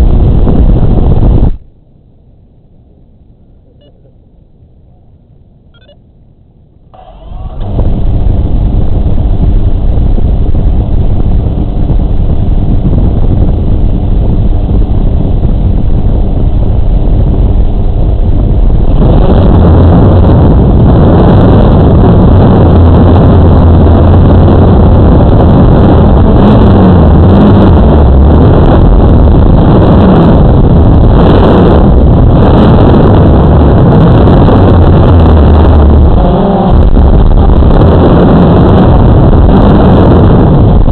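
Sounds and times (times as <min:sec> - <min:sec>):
drone propellers humming: 0:00.0 - 0:40.9.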